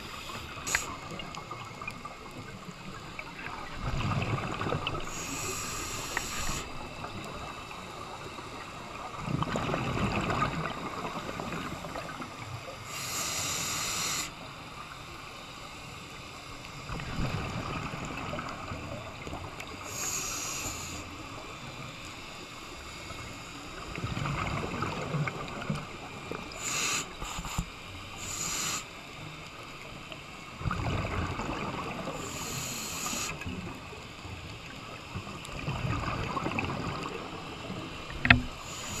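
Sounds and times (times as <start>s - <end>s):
regulator hissing inhale: 0.0s - 1.2s, 5.0s - 8.7s, 12.7s - 14.8s, 19.6s - 23.9s, 26.3s - 29.8s, 31.9s - 34.0s, 38.2s - 39.0s
exhaled bubbles underwater: 0.0s - 12.7s, 16.8s - 20.1s, 23.8s - 27.6s, 30.0s - 39.0s.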